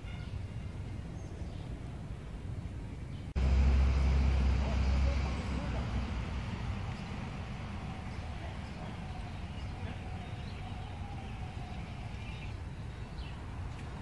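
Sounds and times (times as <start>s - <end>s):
steady low rumble: 3.2s - 14.0s.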